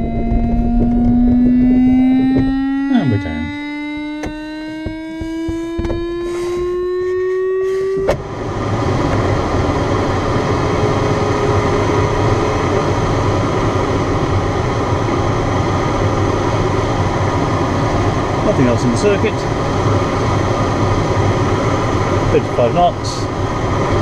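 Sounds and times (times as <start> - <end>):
rising electronic tone: 0.0 - 8.1
low hum: 0.0 - 18.6
airflow rushing in cockpit: 0.0 - 24.0.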